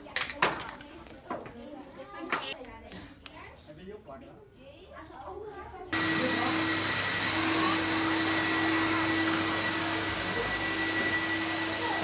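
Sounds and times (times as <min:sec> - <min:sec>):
shop vacuum cleaner running: 0:05.9 - 0:12.0.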